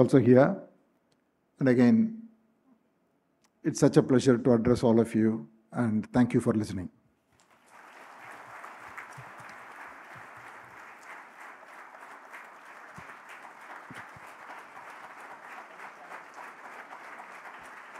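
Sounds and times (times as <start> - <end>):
large audience applauding: 7.4 - 17.9.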